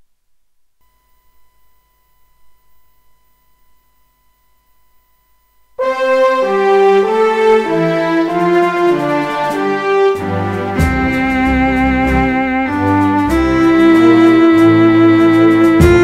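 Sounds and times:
brass music chords: 0:05.8 - 0:16.0.

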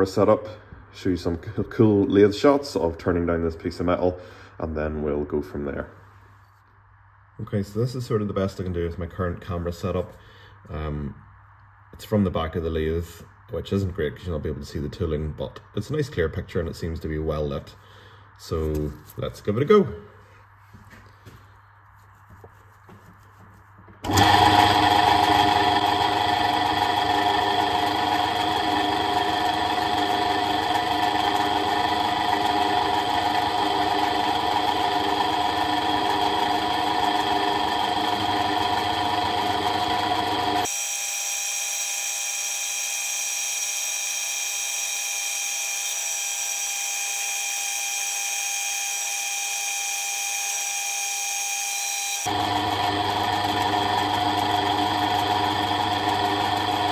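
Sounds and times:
metal lathe humming and whining: 0:24.1 - 0:56.9.

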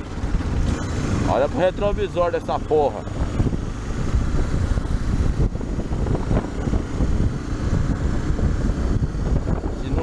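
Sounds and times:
motorcycle engine running: 0:00.0 - 0:10.0
wind on microphone: 0:03.0 - 0:10.0.

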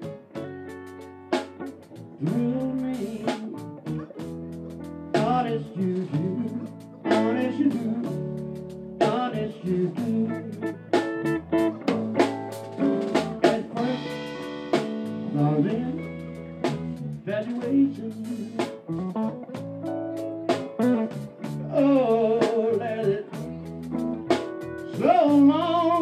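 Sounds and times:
bass guitar: 0:00.0 - 0:26.0
drum kit: 0:00.0 - 0:26.0
electric guitar: 0:00.0 - 0:26.0
man singing: 0:02.1 - 0:04.2, 0:05.1 - 0:11.8, 0:13.1 - 0:19.0, 0:20.7 - 0:23.8, 0:24.8 - 0:26.0.

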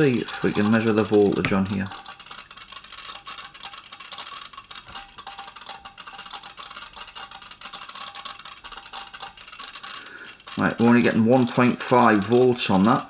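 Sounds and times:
smart plug crackling tick: 0:00.0 - 0:13.0.

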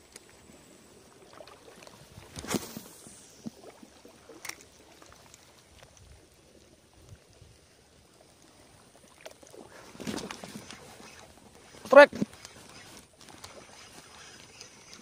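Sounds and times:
fishing rod swish: 0:02.2 - 0:03.6, 0:09.7 - 0:15.0
spinning reel clicking: 0:10.7 - 0:15.0.

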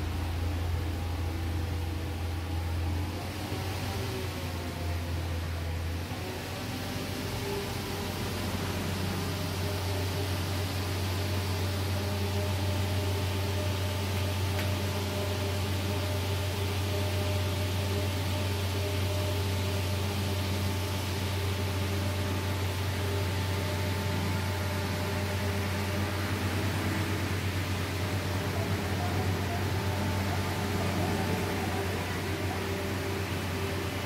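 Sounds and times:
low machine hum: 0:00.0 - 0:34.0.

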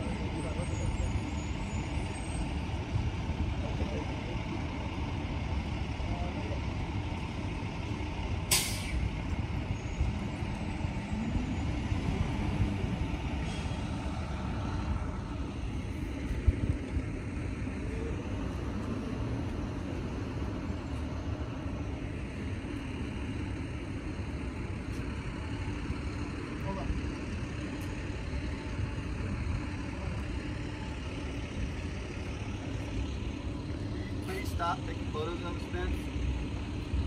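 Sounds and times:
road traffic rumble: 0:00.0 - 0:37.0
short sharp hiss: 0:08.5 - 0:09.0.

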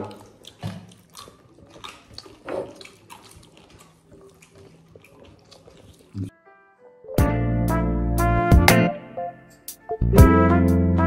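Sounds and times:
soft chewing with crackles: 0:00.0 - 0:06.3.

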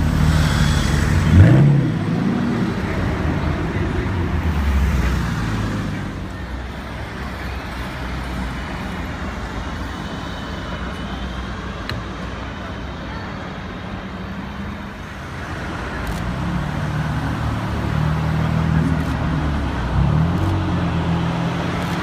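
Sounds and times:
street traffic noise: 0:00.0 - 0:22.0
sports car engine revving: 0:00.1 - 0:02.8.

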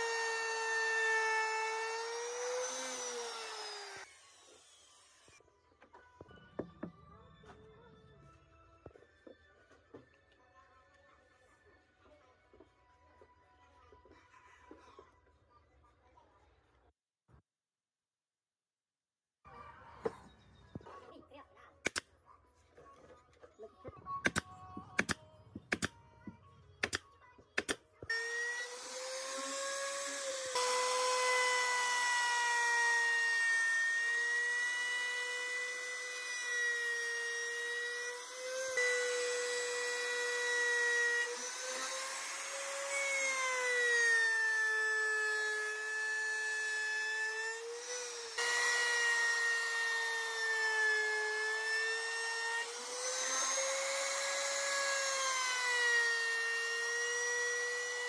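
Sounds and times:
router motor whining: 0:00.0 - 0:05.4, 0:28.1 - 0:58.0
sharp clicks: 0:24.2 - 0:26.0, 0:26.8 - 0:27.8.

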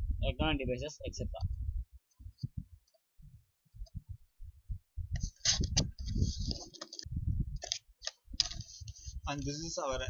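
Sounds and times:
clicks and rustling: 0:05.2 - 0:09.0.

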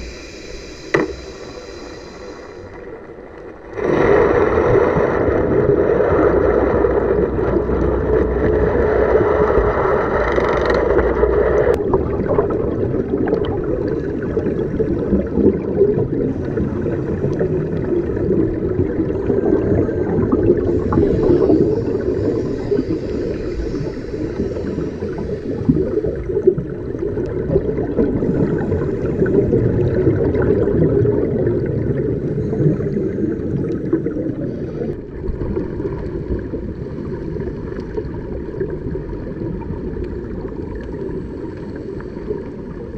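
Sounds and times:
bright hiss: 0:00.0 - 0:02.7, 0:20.8 - 0:25.8
gurgling water: 0:00.0 - 0:42.9
muffled underwater rumble: 0:00.0 - 0:42.9.

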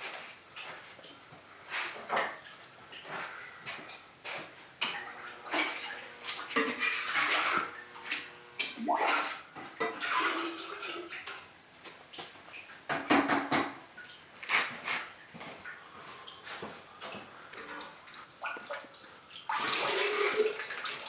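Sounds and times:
glaze splashing and sloshing: 0:04.9 - 0:11.4.

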